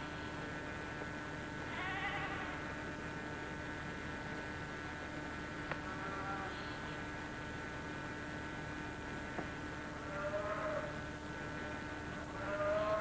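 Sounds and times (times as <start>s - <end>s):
electrical hum and hiss: 0.0s - 13.0s
faint sheep bleat: 1.7s - 2.7s, 5.8s - 6.8s, 10.0s - 11.0s, 12.3s - 13.0s.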